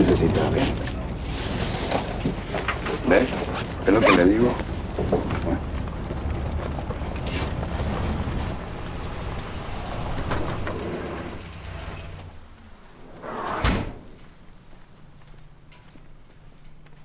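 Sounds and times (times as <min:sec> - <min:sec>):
van engine rumbling: 0:00.0 - 0:13.1
sliding door banging shut: 0:07.3 - 0:12.5, 0:13.2 - 0:14.2.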